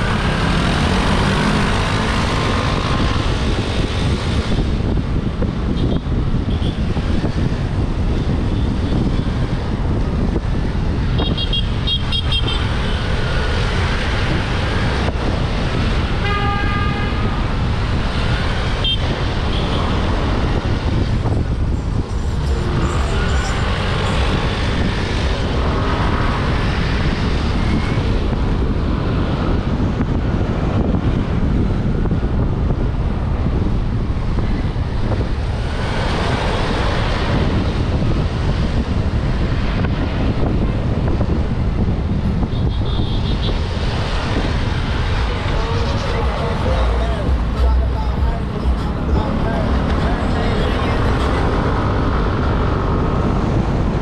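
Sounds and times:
scooter road noise: 0.0s - 54.0s
wind on microphone: 0.0s - 54.0s
vehicle horns tooting: 11.2s - 12.7s, 16.2s - 17.4s, 42.5s - 43.6s.

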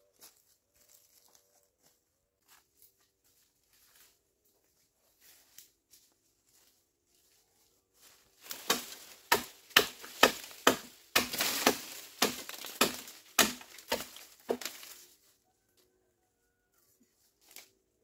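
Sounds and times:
bamboo being chopped: 8.4s - 15.0s.

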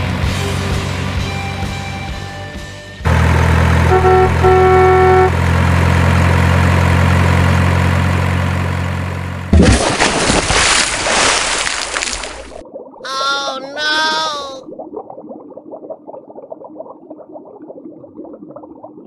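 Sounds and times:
heavy truck engine running: 0.0s - 9.6s
truck horn honking: 3.1s - 5.6s
loud water splash: 9.5s - 12.6s.

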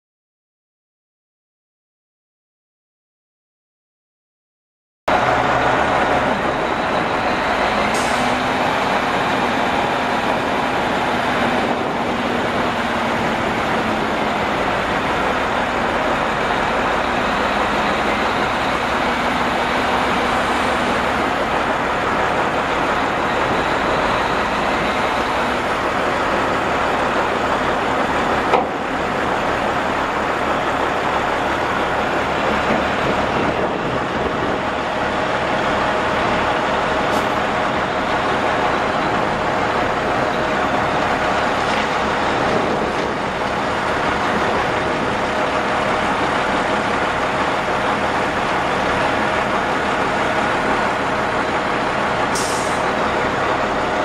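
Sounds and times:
diesel truck engine running: 5.1s - 54.0s.

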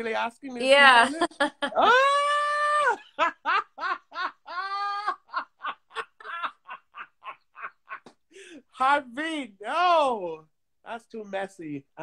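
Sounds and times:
man laughing hard: 2.8s - 8.1s.

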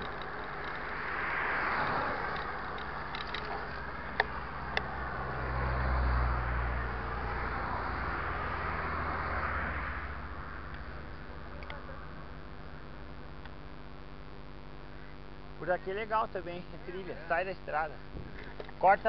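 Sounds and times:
cars passing on highway: 0.0s - 13.0s.

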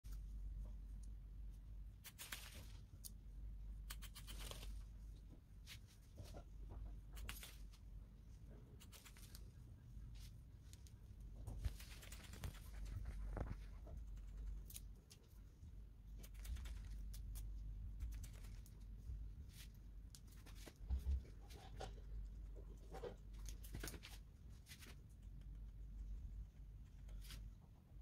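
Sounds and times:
low steady hum: 0.1s - 28.0s
scissors snipping hair: 2.0s - 3.2s, 3.8s - 4.7s, 8.8s - 9.4s, 16.2s - 18.8s.

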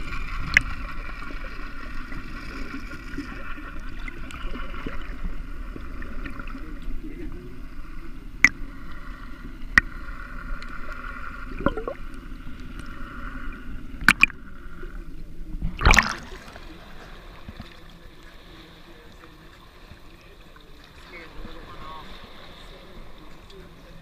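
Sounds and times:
muffled underwater noise: 0.0s - 24.0s
water sound: 0.0s - 24.0s
water splashing: 0.0s - 24.0s
sharp clicks underwater: 0.4s - 0.9s, 8.4s - 8.6s, 11.6s - 12.9s, 14.0s - 14.4s, 15.6s - 16.4s.

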